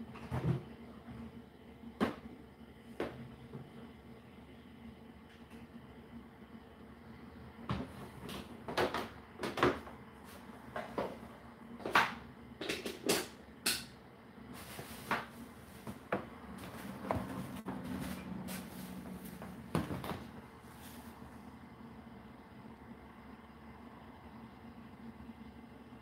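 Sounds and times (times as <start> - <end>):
dishwasher humming: 7.3 - 22.2
dishwasher knocks and clatters: 19.7 - 20.3.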